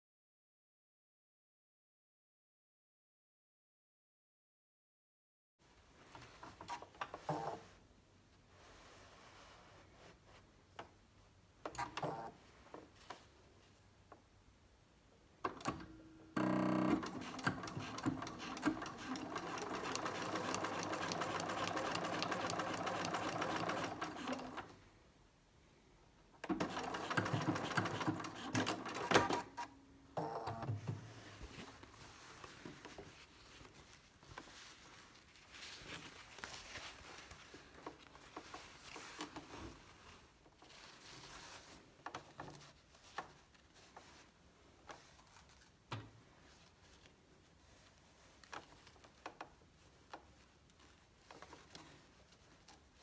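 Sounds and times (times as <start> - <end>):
electric sewing machine stitching: 16.4 - 24.7, 26.4 - 29.5.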